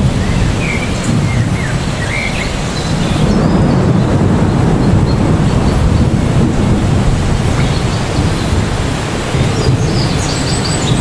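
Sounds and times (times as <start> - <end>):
bird chirps: 0.0 - 6.1, 9.4 - 11.0
heavy rain on trees: 0.0 - 11.0.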